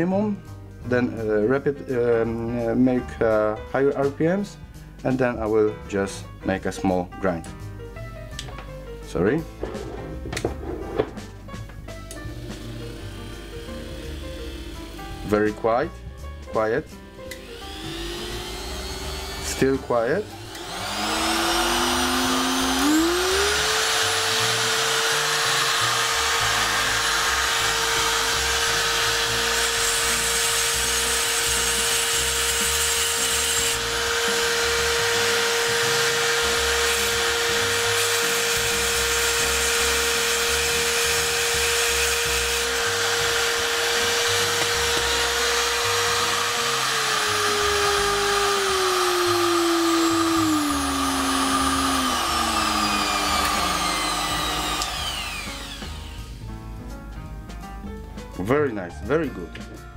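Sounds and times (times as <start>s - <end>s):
die grinder motor whine: 12.2s - 15.3s, 17.2s - 56.4s.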